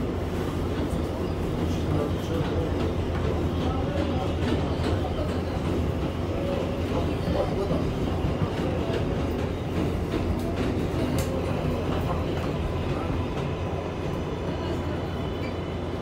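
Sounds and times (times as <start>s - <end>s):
train rumbling on track: 0.0s - 16.0s
faint rail clicks: 8.4s - 12.6s.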